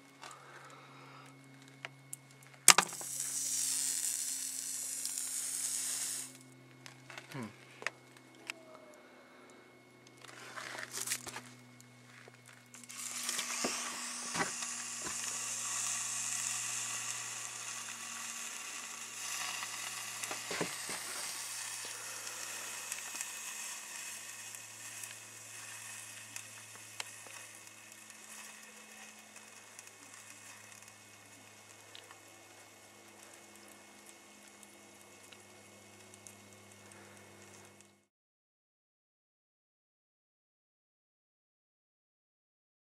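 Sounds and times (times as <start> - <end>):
crackles: 0.0 - 38.1
melted phone hissing: 2.6 - 6.4, 10.2 - 32.2.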